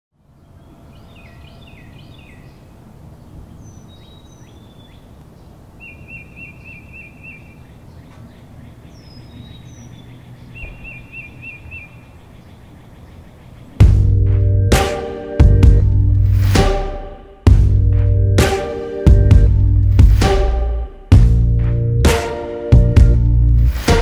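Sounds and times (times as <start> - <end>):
birds chirping: 0.2 - 15.8
bird trilling phrase: 8.4 - 13.6
thin high bird whistles: 10.6 - 12.0.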